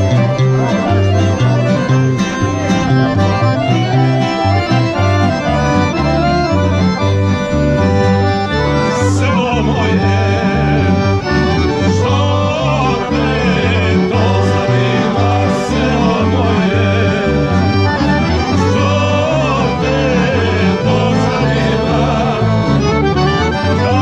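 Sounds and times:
accordion and guitar band: 0:00.0 - 0:24.0
men singing: 0:08.8 - 0:24.0.

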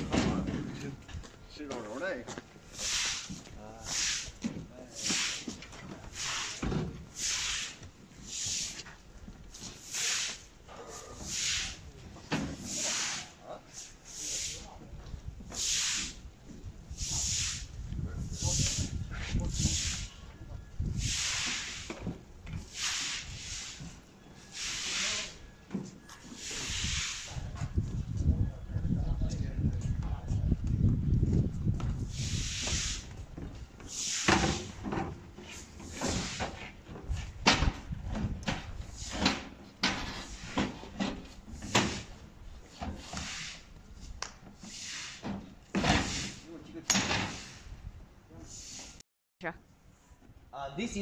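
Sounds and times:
bursts of hissing: 0:06.1 - 0:08.8, 0:09.8 - 0:11.9, 0:12.6 - 0:14.7, 0:15.5 - 0:16.2, 0:16.9 - 0:17.7, 0:20.9 - 0:21.9, 0:22.6 - 0:25.4, 0:26.3 - 0:27.4, 0:32.1 - 0:33.2, 0:33.8 - 0:34.8.

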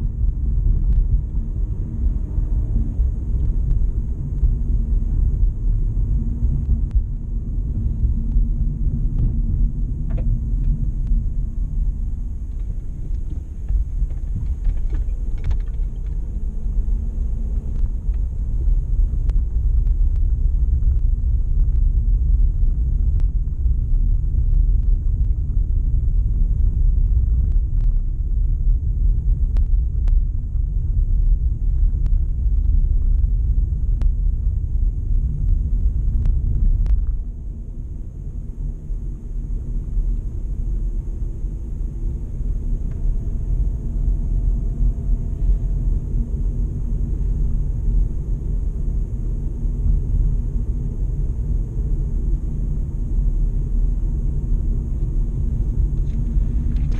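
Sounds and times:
car road and engine rumble: 0:00.0 - 0:56.9
light ticks: 0:29.5 - 0:30.2, 0:36.2 - 0:37.2.

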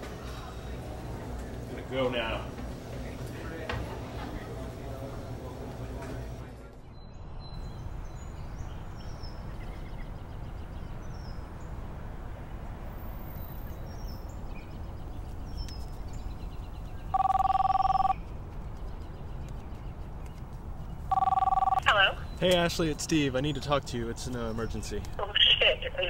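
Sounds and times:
outdoor background hum: 0:00.0 - 0:26.0
telephone ringing tone: 0:17.1 - 0:18.2, 0:21.1 - 0:21.9.

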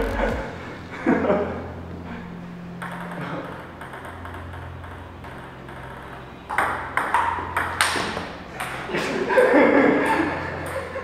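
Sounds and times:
low steady hum: 0:00.0 - 0:00.9.

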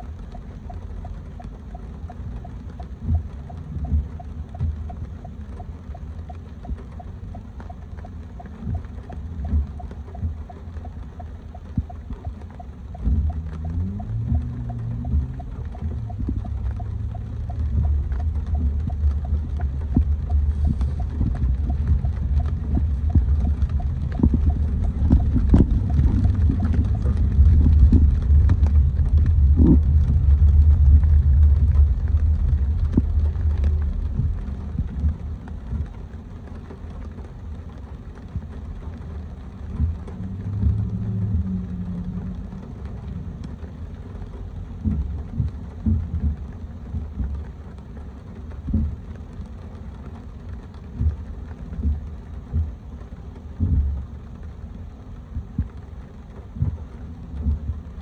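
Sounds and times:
car road and engine rumble: 0:00.0 - 0:58.0
rain taps: 0:00.0 - 0:58.0.

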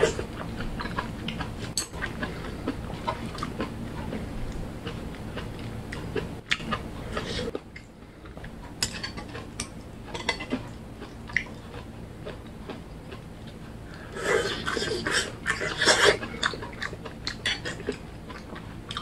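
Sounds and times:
chewing: 0:00.0 - 0:19.0.

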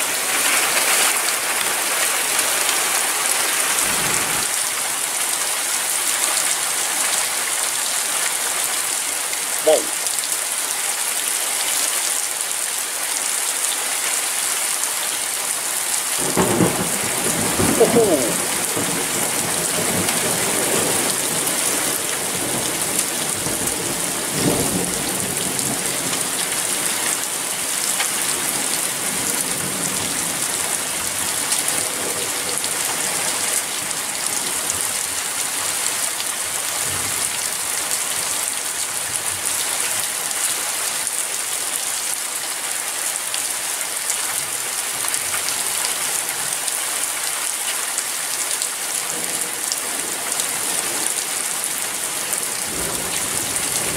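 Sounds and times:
steady rain falling: 0:00.0 - 0:53.9
low rumble of thunder: 0:16.2 - 0:26.0, 0:52.7 - 0:53.9.

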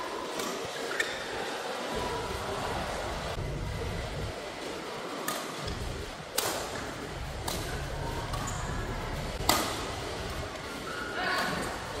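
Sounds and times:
low background hum: 0:02.0 - 0:10.9
racket hitting shuttlecock: 0:09.4 - 0:09.9.

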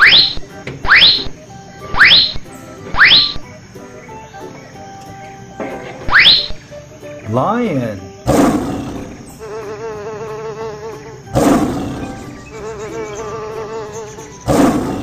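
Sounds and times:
lion roars: 0:08.3 - 0:09.2, 0:11.4 - 0:12.3, 0:14.5 - 0:15.0.

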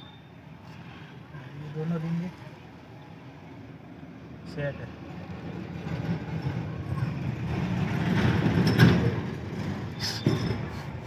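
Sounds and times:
motor vehicle passing by: 0:05.2 - 0:11.0.

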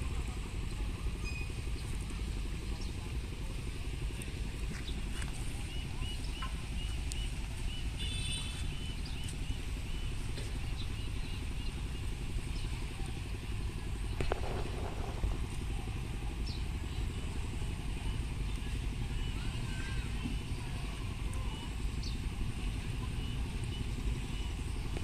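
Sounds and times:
low outdoor rumble: 0:00.0 - 0:25.0
brief squeak: 0:01.2 - 0:01.6.

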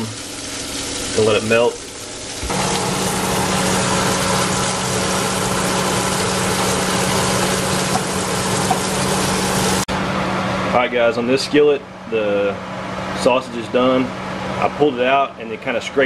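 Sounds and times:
eggs sizzling in butter: 0:00.0 - 0:09.9.

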